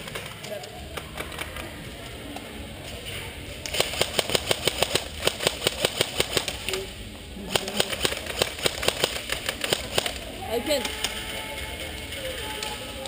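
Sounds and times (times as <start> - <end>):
airsoft guns firing rapidly: 3.7 - 6.8, 7.5 - 10.3.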